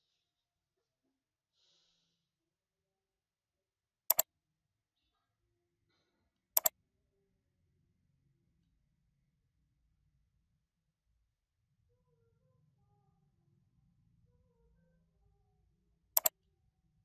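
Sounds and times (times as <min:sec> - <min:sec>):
computer mouse clicking: 0:16.2 - 0:16.4.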